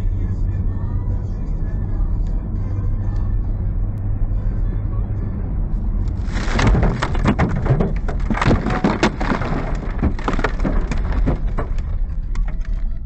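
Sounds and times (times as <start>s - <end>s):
road noise rumble: 0.0s - 13.0s
ice spattering on windshield: 6.2s - 12.1s.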